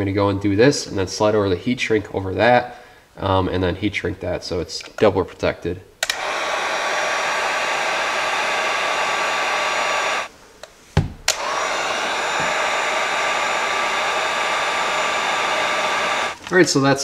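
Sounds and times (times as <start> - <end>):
click: 6.0 - 6.2
heat gun blowing: 6.0 - 10.3, 11.3 - 16.5.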